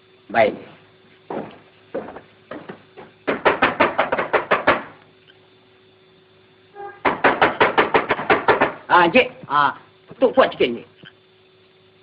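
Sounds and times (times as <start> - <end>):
knocking on a door: 1.3 - 5.0, 6.8 - 8.9.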